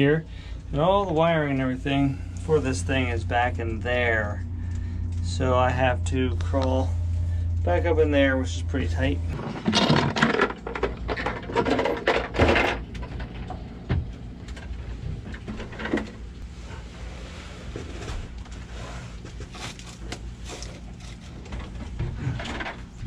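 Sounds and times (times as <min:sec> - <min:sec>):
steady low hum: 0:00.0 - 0:23.0
knocks and scrapes of climbing: 0:09.3 - 0:23.0.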